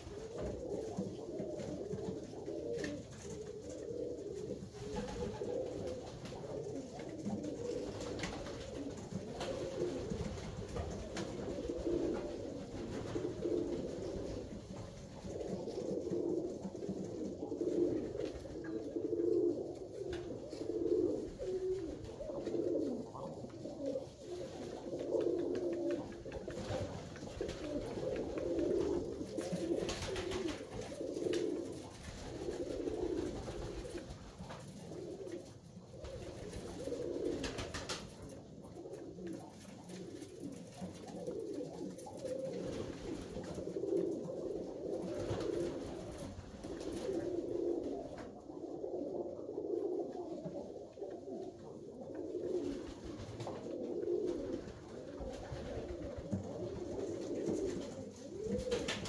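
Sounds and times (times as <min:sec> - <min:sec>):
pigeons cooing: 0:00.0 - 0:59.0.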